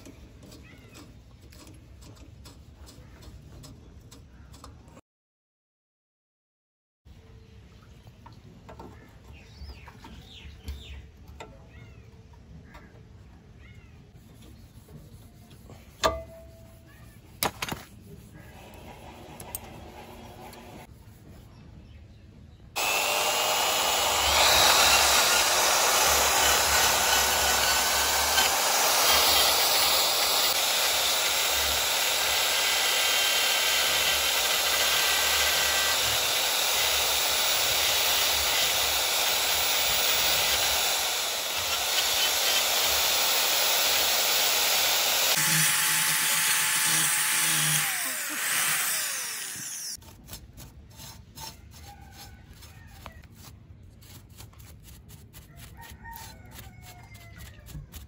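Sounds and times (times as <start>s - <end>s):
power tool running: 18.5s - 20.9s, 22.8s - 50.0s.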